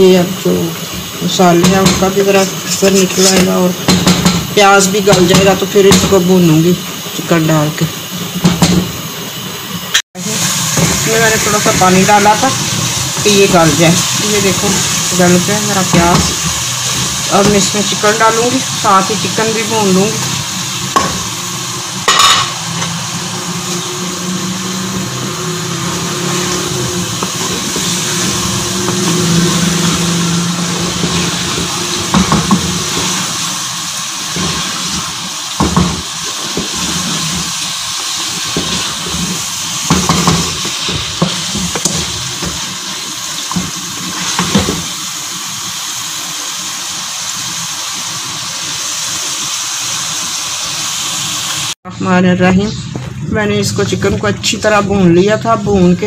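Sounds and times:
chicken sizzling in oil: 0.0 - 51.8
wooden spoon knocking on pot: 3.3 - 4.5, 31.0 - 33.1, 35.6 - 37.5, 39.8 - 42.6.

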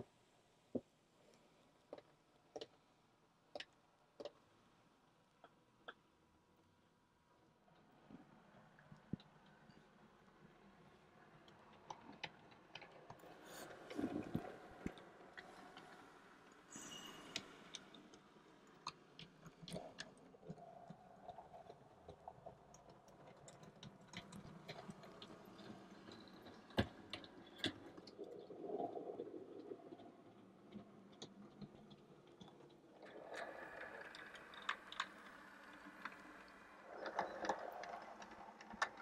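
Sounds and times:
model train wheels clicking: 31.8 - 39.0.

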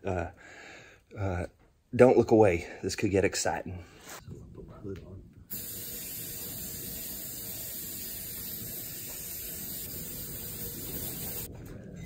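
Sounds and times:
aerosol can spraying hiss: 5.5 - 11.5.

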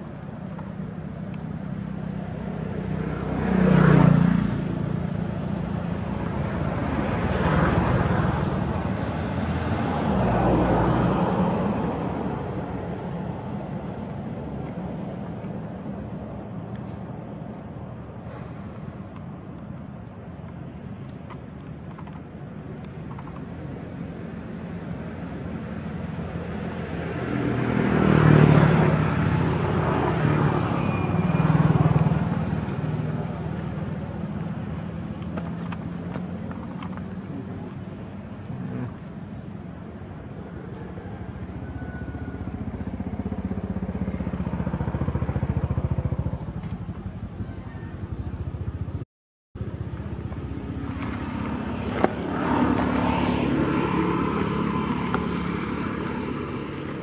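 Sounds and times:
low engine hum: 0.0 - 49.0, 49.6 - 57.0
vehicles passing: 0.0 - 49.0, 49.6 - 57.0.

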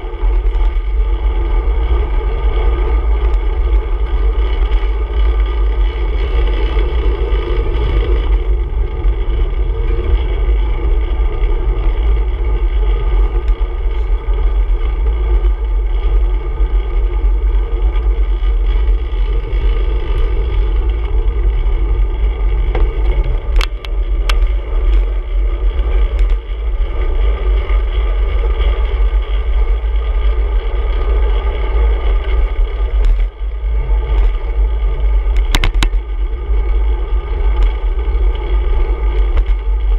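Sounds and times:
tyres on road: 0.0 - 39.9
wind rumble: 0.0 - 39.9.

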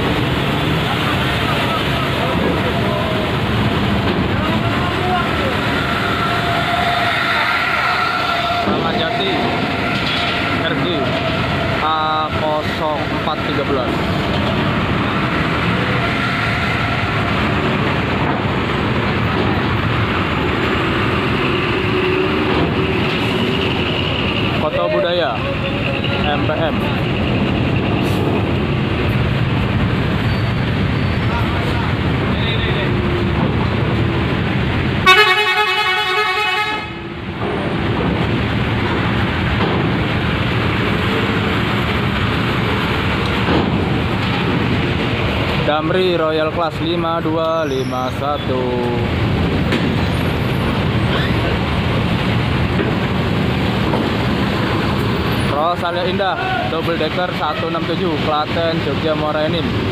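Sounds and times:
bus diesel engine passing: 0.0 - 59.9
bus horn: 35.0 - 37.2.

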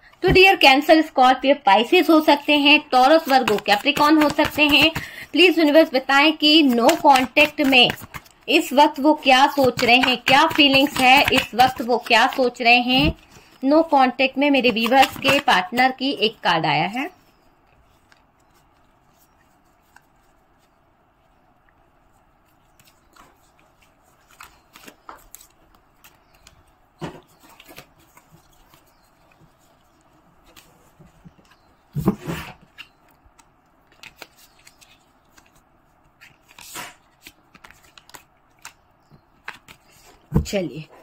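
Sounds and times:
cards being shuffled: 1.9 - 13.9, 14.5 - 16.0, 22.4 - 26.7, 32.6 - 38.8.

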